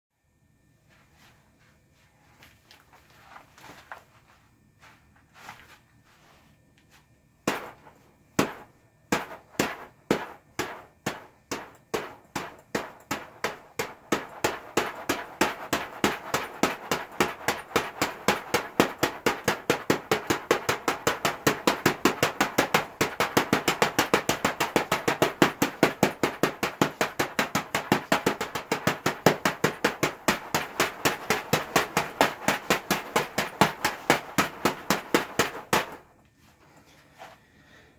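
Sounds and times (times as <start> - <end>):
fists striking punching bag: 7.4 - 36.1.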